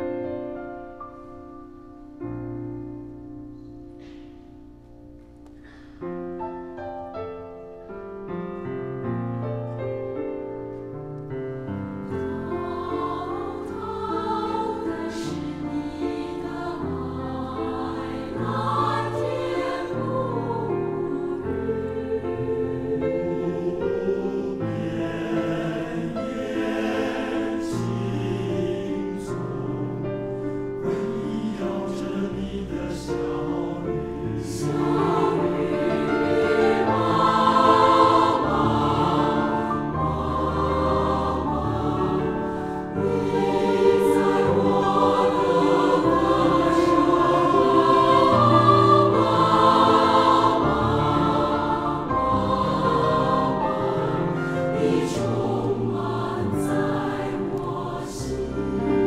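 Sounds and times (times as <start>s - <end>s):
grand piano: 0.0s - 59.0s
mixed choir singing: 12.1s - 59.0s.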